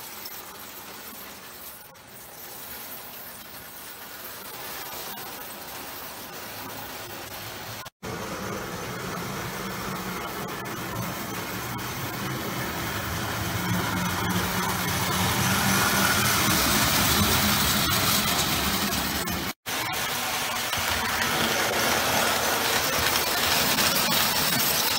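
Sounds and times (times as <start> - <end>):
toy train motor hum: 8.1 - 24.9.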